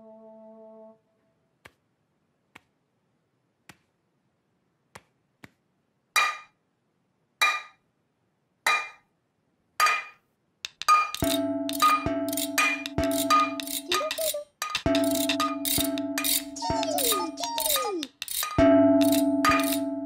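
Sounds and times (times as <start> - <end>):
metal pans clanging together: 10.8 - 17.2, 18.3 - 19.9.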